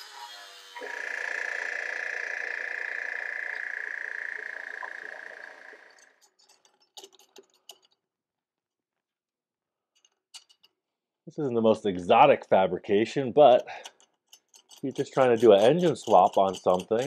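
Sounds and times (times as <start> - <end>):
light metal clicks and knocks: 6.2 - 8.0, 10.0 - 10.8.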